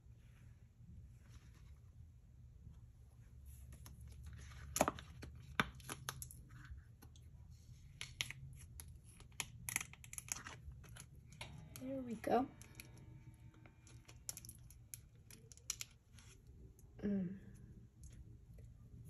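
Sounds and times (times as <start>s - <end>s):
silicone mold crackling and clicking: 8.0s - 16.1s.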